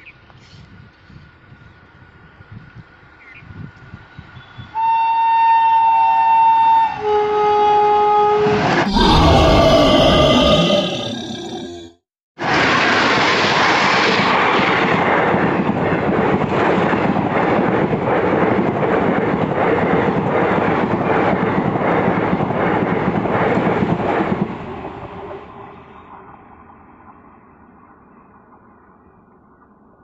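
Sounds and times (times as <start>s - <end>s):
train wheels rushing on rails: 12.4s - 27.2s
clickety-clack over rail joints: 14.1s - 25.5s.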